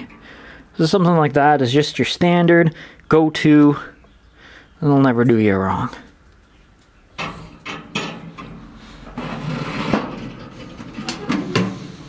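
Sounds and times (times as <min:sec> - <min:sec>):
metal clicks and rattles on wire rack: 0:07.2 - 0:08.6.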